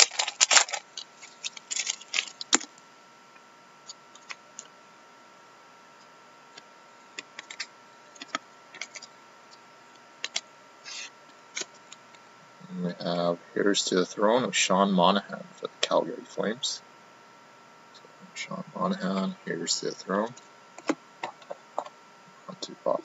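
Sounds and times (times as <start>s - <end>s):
foil wrapper crinkling and tearing: 0.0s - 2.7s.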